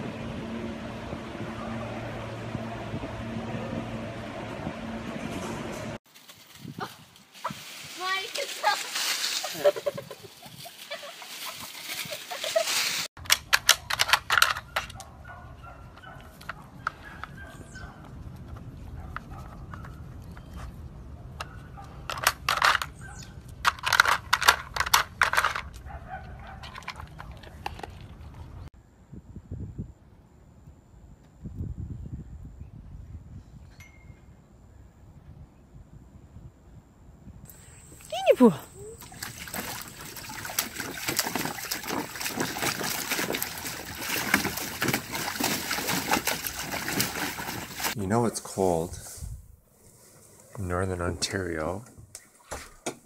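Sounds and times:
dog splashing in water: 39.0s - 48.0s.

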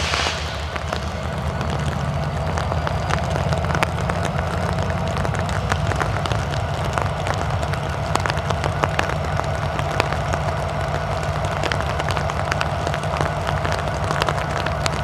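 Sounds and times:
steady whine: 0.0s - 3.5s
locomotive engine drone: 0.0s - 15.0s
raindrops ticking: 0.5s - 15.0s.

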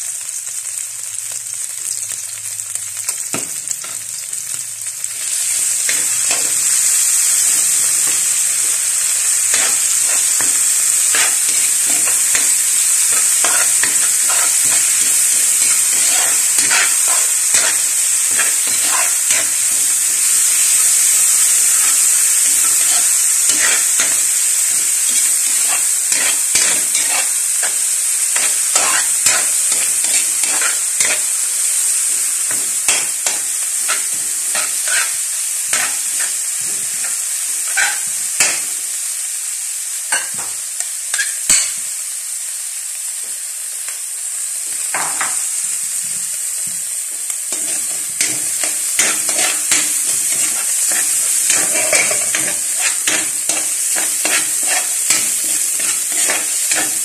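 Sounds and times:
onion sizzling in hot oil: 0.0s - 57.0s
spatula scraping a pan: 5.8s - 38.6s, 47.5s - 57.0s.

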